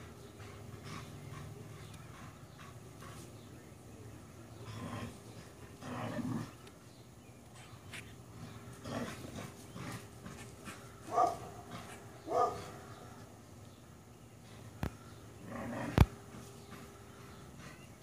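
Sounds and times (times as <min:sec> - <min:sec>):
dog barking: 0:11.1 - 0:12.8.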